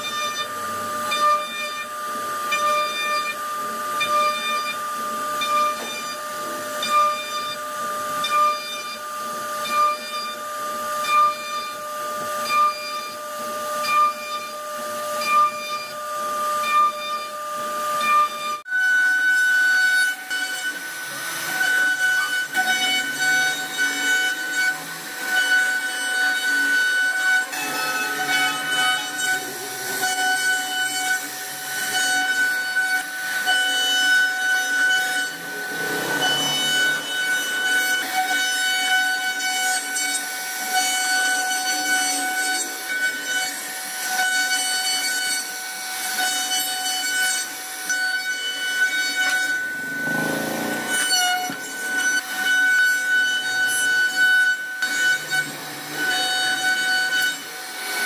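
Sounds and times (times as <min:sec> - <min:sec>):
cutter rasping into wood: 0:20.1 - 0:58.0
router spindle whining: 0:20.2 - 0:46.5, 0:48.5 - 0:52.7.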